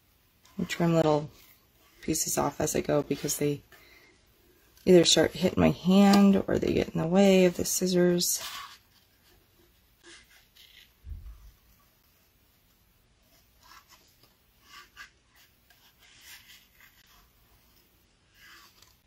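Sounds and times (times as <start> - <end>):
low thump: 11.0 - 11.5.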